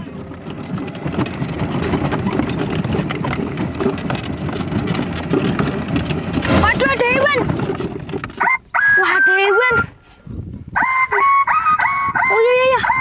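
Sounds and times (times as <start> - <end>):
toy truck wheels rumbling: 0.0 - 9.9.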